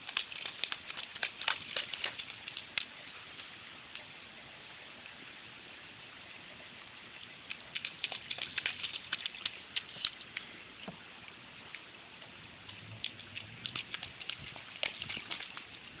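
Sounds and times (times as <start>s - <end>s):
bare feet splashing in water: 0.0s - 3.2s, 7.5s - 10.5s, 12.6s - 16.0s
light rain hiss: 0.0s - 16.0s.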